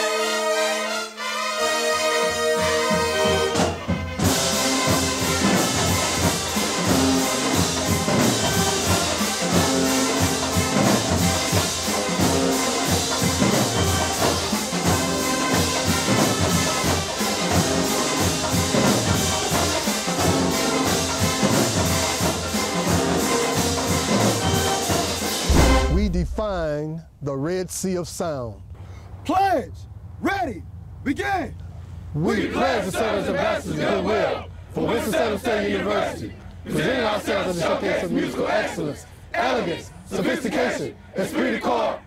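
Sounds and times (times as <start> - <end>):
brass section playing tune: 0.0 - 26.8
drumline beat: 2.6 - 26.9.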